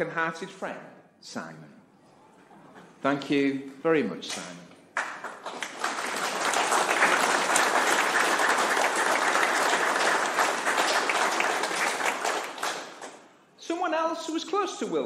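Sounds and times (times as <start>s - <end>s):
crowd applauding: 5.0s - 13.3s.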